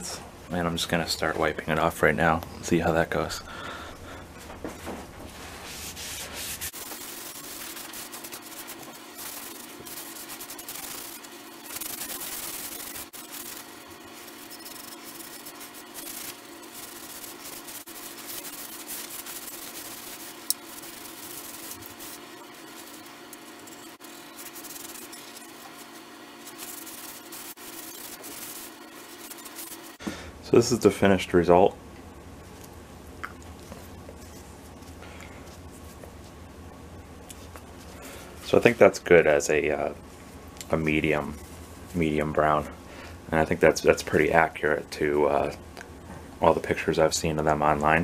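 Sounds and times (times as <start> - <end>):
rag wiping wood: 5.3 - 30.0.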